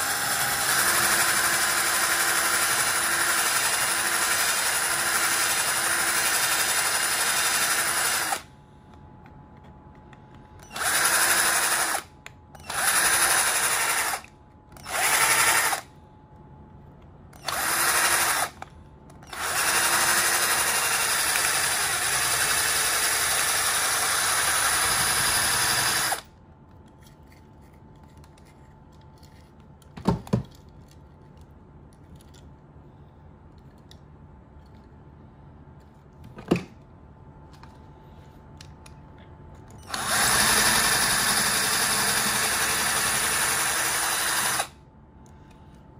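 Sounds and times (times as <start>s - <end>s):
cordless drill drilling metal: 0.0s - 8.4s, 10.7s - 15.8s, 17.4s - 18.6s, 19.3s - 26.2s, 39.8s - 44.7s.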